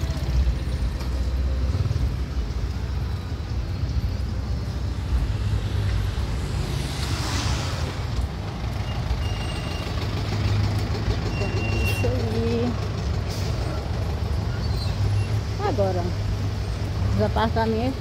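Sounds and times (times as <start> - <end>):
traffic rumble: 0.0 - 18.0
tyre hiss of passing vehicle: 4.8 - 11.9.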